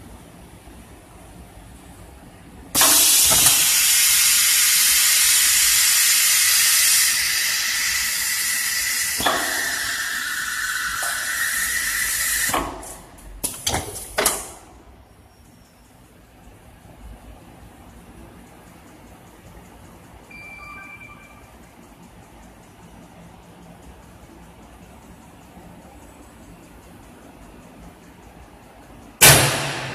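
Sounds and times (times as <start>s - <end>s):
pneumatic exhaust puffs: 2.8s - 14.3s.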